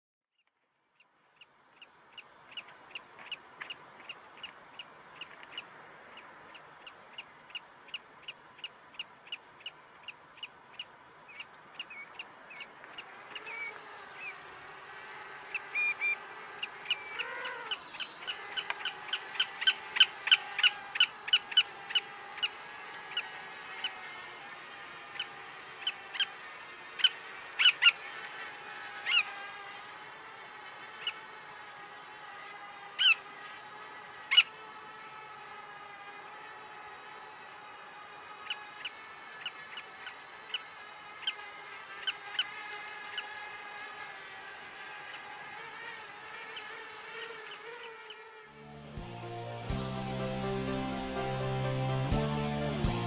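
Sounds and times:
bird chirping: 0:00.4 - 0:29.4
drone motors whining: 0:08.2 - 0:53.0.

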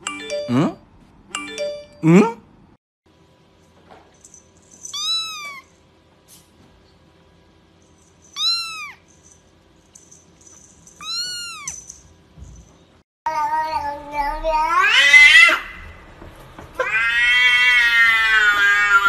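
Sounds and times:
kitten meowing: 0:04.9 - 0:05.7, 0:08.4 - 0:09.0, 0:11.0 - 0:11.9.

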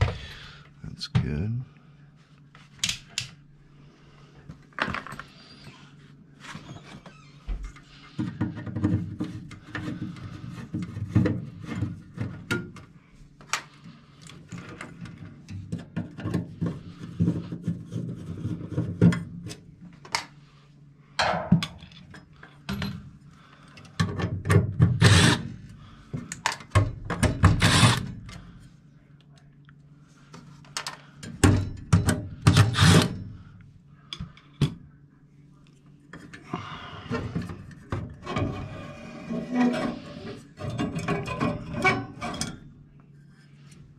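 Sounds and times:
loud scraping rubs: 0:38.3 - 0:40.6.

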